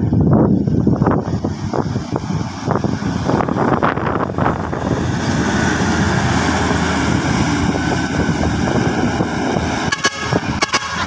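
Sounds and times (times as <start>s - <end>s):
bus driving past: 0.0s - 11.0s.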